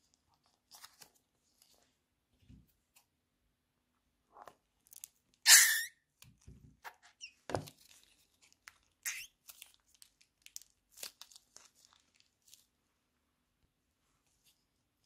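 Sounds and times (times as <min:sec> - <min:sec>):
plastic bag crinkling: 0:07.8 - 0:12.7.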